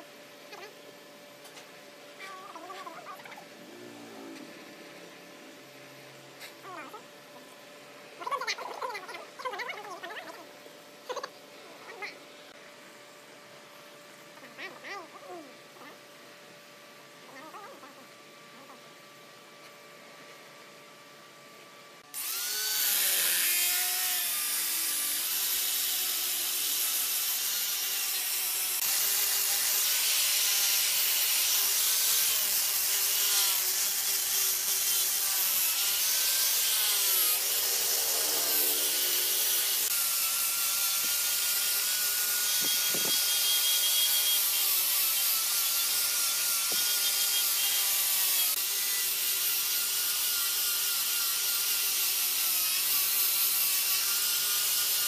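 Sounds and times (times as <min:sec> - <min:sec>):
angle grinder sanding wood: 0:22.1 - 0:55.0.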